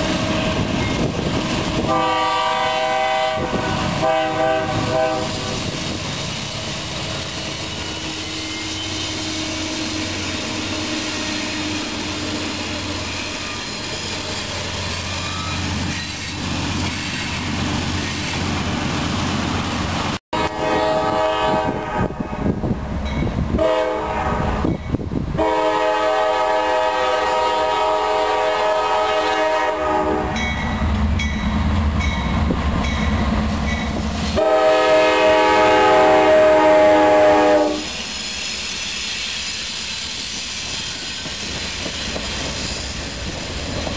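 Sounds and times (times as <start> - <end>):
freight train rumbling past: 0.0 - 43.9
diesel locomotive air horn: 1.7 - 5.9, 7.5 - 14.1, 20.3 - 22.6, 23.5 - 24.7, 25.4 - 30.6, 34.2 - 38.1.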